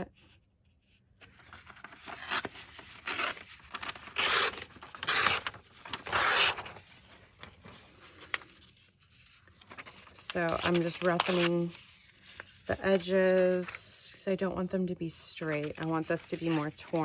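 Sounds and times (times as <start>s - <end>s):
paper tearing by hand: 1.9s - 6.8s, 10.5s - 11.8s.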